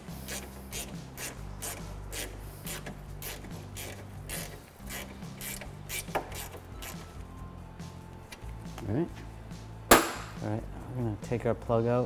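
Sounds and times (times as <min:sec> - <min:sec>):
hand ratchet clicking: 0:00.3 - 0:07.0.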